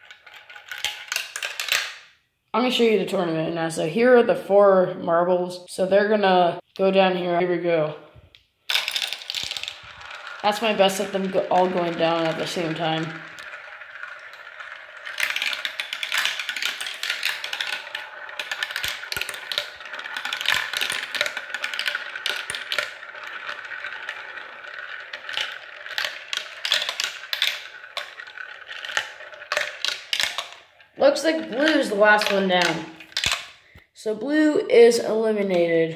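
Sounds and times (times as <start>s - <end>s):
marbles rolling rattle and clicks: 0.0s - 2.2s, 8.7s - 33.8s.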